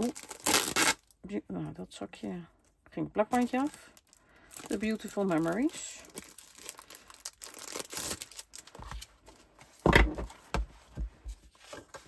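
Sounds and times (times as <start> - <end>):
plastic sleeve crinkling: 0.0 - 1.2, 3.2 - 9.8.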